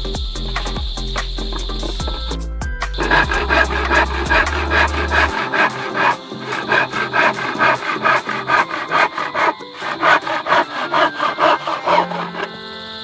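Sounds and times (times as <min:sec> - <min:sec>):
handsaw cutting wood: 0:03.0 - 0:12.6.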